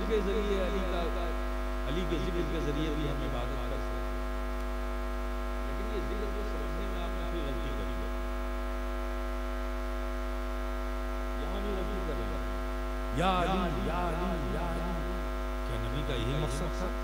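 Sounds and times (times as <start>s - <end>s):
electrical mains hum: 0.0s - 17.0s
person speaking: 5.7s - 8.2s, 13.1s - 17.0s.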